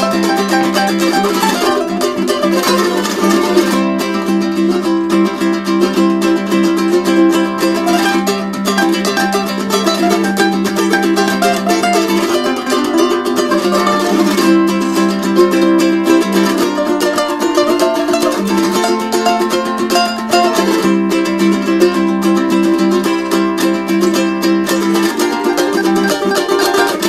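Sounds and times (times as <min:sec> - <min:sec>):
music with plucked strings: 0:00.0 - 0:27.0.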